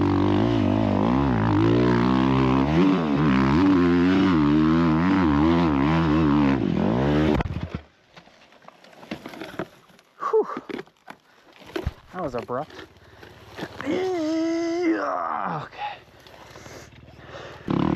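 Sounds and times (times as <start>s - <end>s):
dirt bike engine revving: 0.0s - 7.5s, 17.3s - 17.9s.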